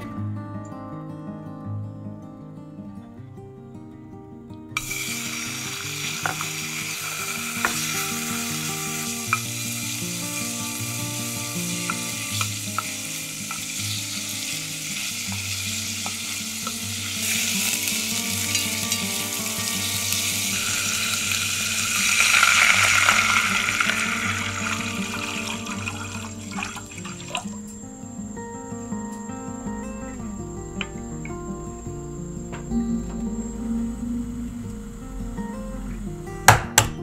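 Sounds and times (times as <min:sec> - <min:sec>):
broth pouring into pot: 0:04.8 - 0:28.4
meat sizzling in oil: 0:04.8 - 0:28.9.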